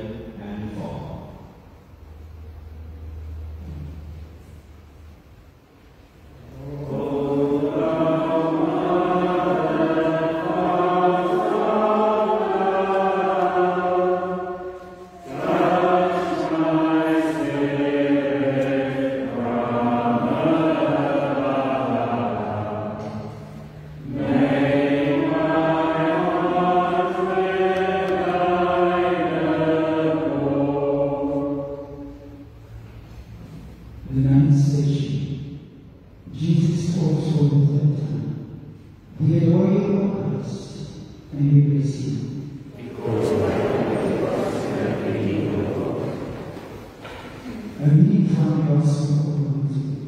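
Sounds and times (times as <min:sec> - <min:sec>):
voices singing a hymn: 0:06.4 - 0:34.9, 0:39.2 - 0:50.0.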